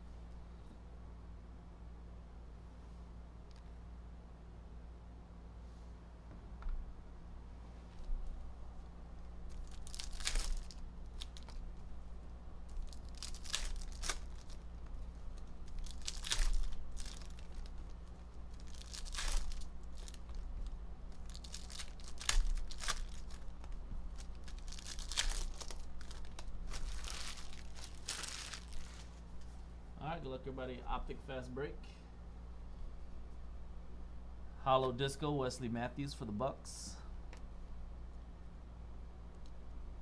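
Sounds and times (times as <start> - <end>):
wrapper ripping and crinkling: 9.4 - 11.7, 12.6 - 29.3.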